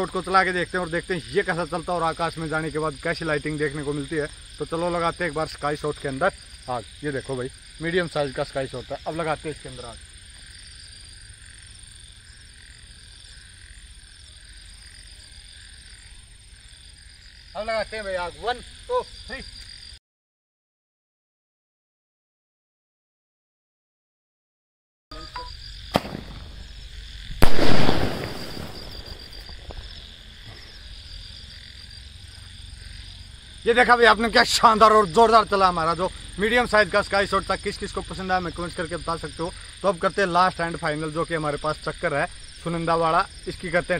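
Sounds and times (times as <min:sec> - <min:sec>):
high chirring of night creatures: 0:25.1 - 0:35.4
firework bang with crackling tail: 0:25.9 - 0:26.7, 0:27.4 - 0:29.8.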